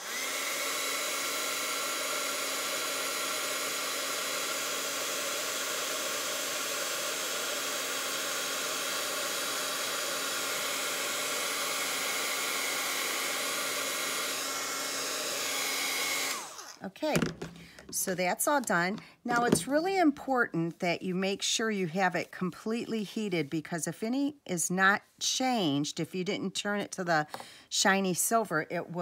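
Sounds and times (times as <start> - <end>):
heat tool fan blowing: 0.0 - 16.8.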